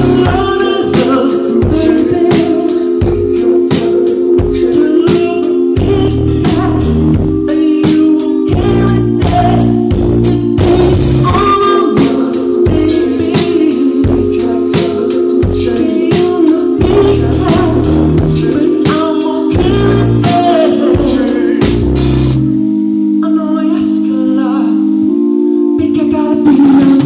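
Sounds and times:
man singing: 0.0 - 21.9, 23.2 - 25.1, 25.8 - 27.0
drum kit beat: 0.0 - 23.1, 26.3 - 27.0
bass notes: 0.0 - 23.2, 24.8 - 27.0
held keyboard chord: 0.0 - 27.0
electric guitar: 25.8 - 27.0.

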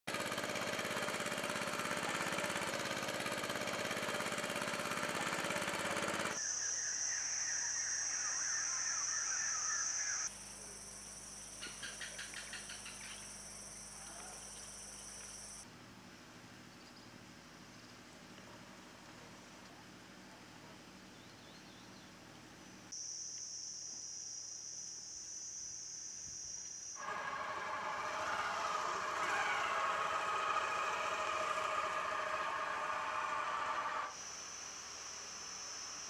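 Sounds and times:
pulsing insect chorus: 6.4 - 15.6, 22.9 - 27.2, 34.1 - 36.0
shrill insect tones: 6.4 - 15.6, 22.9 - 27.0.

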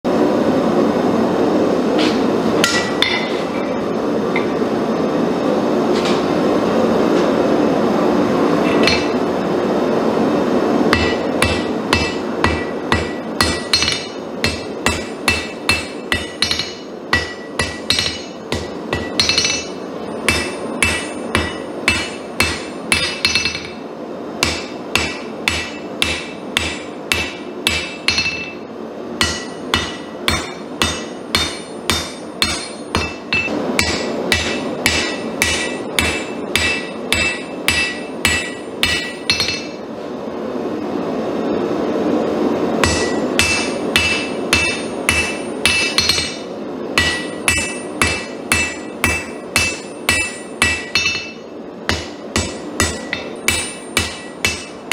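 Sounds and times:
hammer ringing on anvil: 2.6 - 3.6, 8.7 - 9.2, 10.9 - 23.8, 24.4 - 39.8, 42.8 - 54.9.

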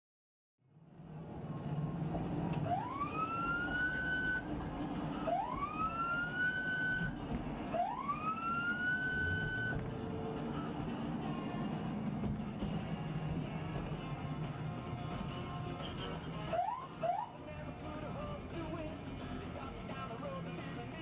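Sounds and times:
car engine and road noise: 0.6 - 21.0
police siren wailing: 2.6 - 10.8, 16.5 - 17.4.

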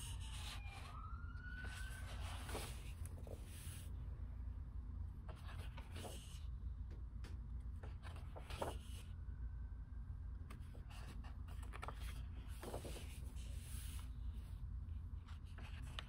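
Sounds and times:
steady low hum: 0.0 - 16.0
book pages turning: 1.6 - 3.9, 5.2 - 6.4, 7.6 - 9.1, 10.5 - 14.2, 15.3 - 16.0.

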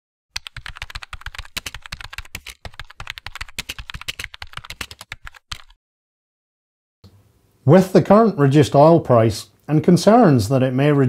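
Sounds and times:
keyboard typing: 0.4 - 5.8.

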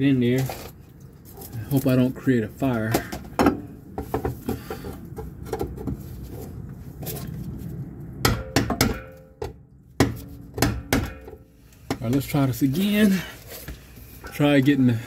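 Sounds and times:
hammer striking pry bar: 8.2 - 12.2.

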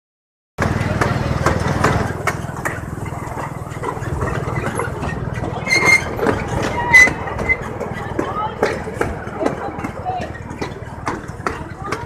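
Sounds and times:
ride vehicle engine rumble: 0.6 - 12.0
high-pitched squeals: 3.6 - 8.2.

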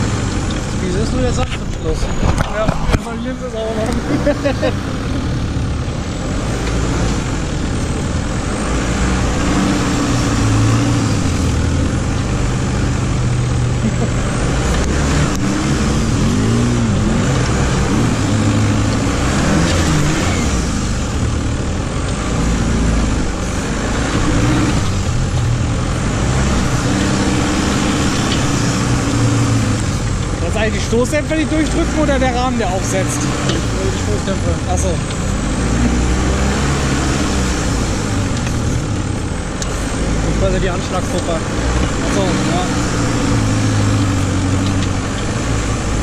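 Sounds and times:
buggy engine revving under load: 0.0 - 46.0.

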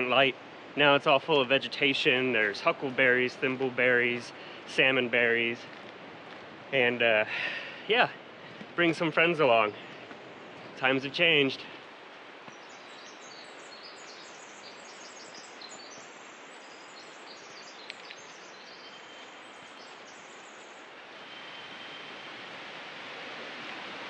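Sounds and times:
distant flowing water: 0.0 - 24.0
small birds chirping: 12.4 - 21.0.

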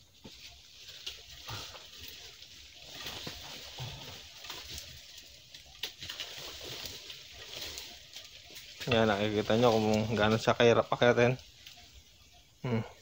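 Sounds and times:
rustling of dry leaves: 0.0 - 13.0
twigs snapping: 0.9 - 10.4.

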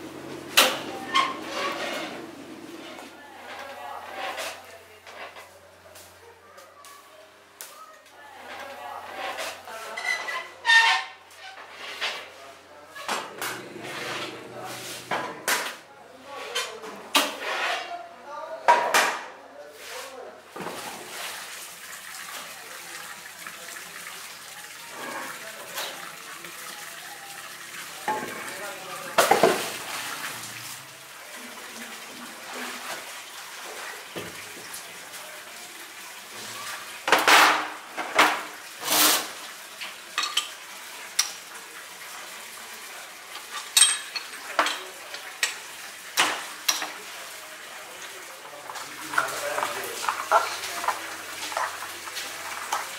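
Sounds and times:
water splashing into a tank: 20.5 - 52.9.

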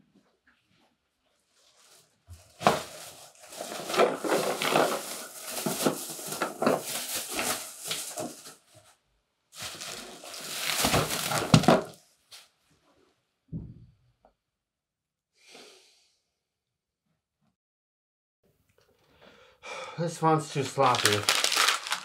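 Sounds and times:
plastic bag rustling: 1.6 - 8.7, 9.6 - 12.4, 20.5 - 22.0.

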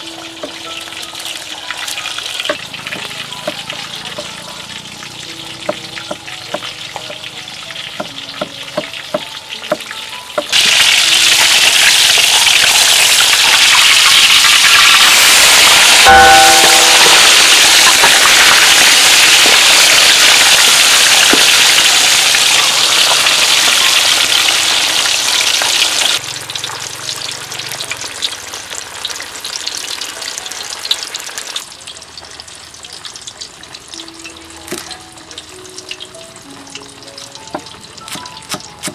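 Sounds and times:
fish sizzling in hot oil: 0.0 - 38.9
metal spatula knocking wok: 2.5 - 4.3, 5.6 - 7.3, 8.0 - 10.6
cleaver chopping on wooden board: 37.6 - 38.9.

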